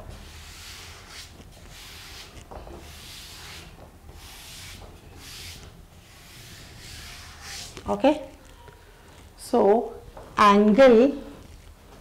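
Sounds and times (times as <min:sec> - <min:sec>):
duster rubbing on chalkboard: 0:00.1 - 0:08.0.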